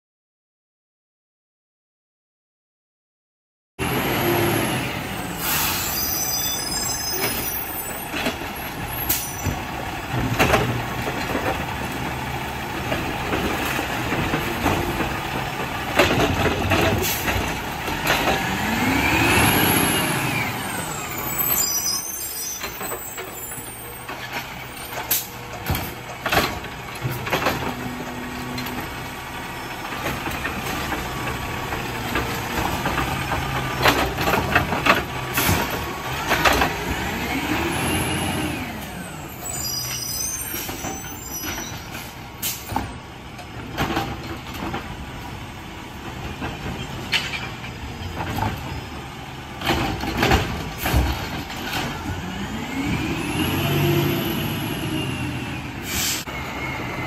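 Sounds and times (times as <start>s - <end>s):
air brakes hissing: 5.2s - 8.0s, 8.9s - 9.5s, 39.0s - 42.8s, 55.8s - 56.4s
cart knocking and clattering: 7.2s - 12.2s, 12.8s - 18.5s, 29.9s - 36.8s, 49.6s - 52.0s.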